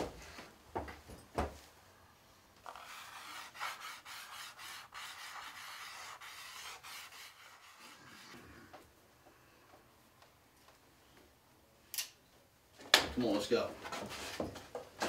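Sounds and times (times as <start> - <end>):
pen scratching on painted wall: 2.6 - 8.7.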